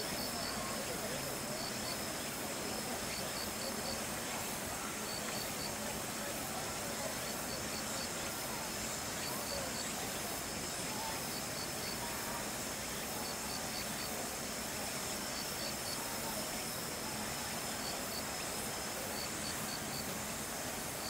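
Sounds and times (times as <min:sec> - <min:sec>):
high insect chirps: 0:00.0 - 0:06.0
outdoor background hiss: 0:00.0 - 0:21.0.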